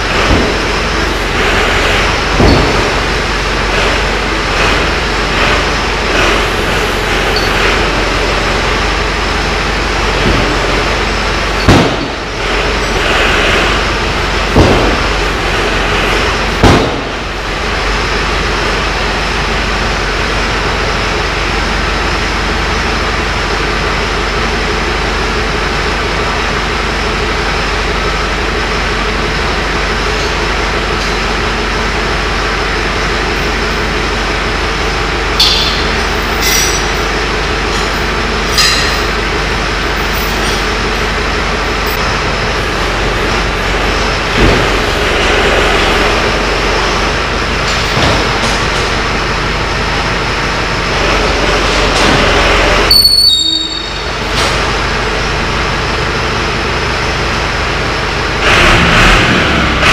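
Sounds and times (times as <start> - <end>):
tractor engine running steadily: 0.0 - 59.9
loud metal knock: 1.4 - 4.0, 11.6 - 12.4, 14.5 - 15.2, 16.6 - 17.3, 35.4 - 37.0
high metallic squeals: 6.7 - 8.7, 35.4 - 37.4, 52.9 - 54.3.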